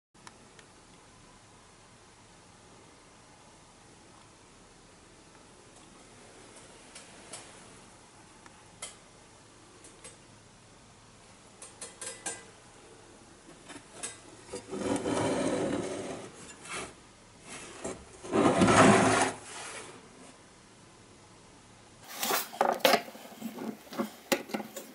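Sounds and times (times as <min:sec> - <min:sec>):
hand plane scraping on table: 0:14.6 - 0:17.0, 0:17.6 - 0:19.6.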